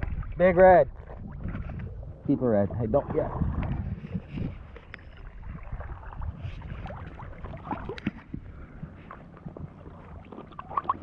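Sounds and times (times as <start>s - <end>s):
water lapping around legs: 0.0s - 11.0s
wind rumble on microphone: 0.0s - 11.0s
small splashes: 4.7s - 11.0s.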